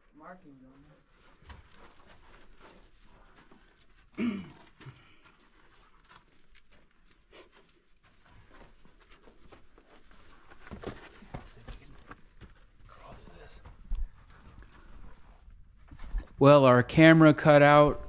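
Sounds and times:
short low grunt: 4.2 - 5.0.

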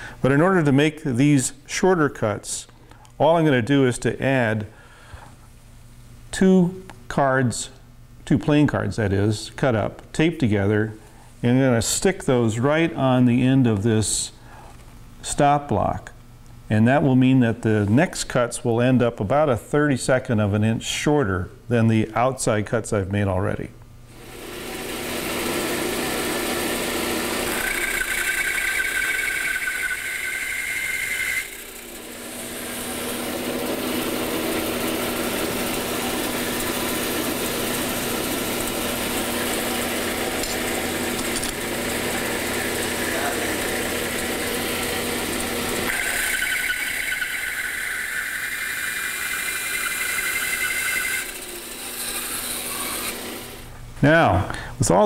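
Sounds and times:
bandsaw cutting wood: 24.1 - 53.7
high-pitched squeal: 27.6 - 31.7, 45.9 - 51.4.

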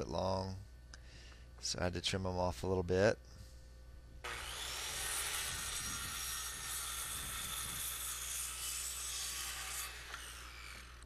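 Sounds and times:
power saw cutting wood: 4.2 - 11.0.

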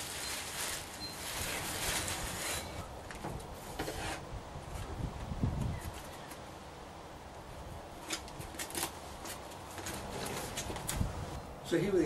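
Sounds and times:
plastic packaging crinkling: 0.0 - 2.8.

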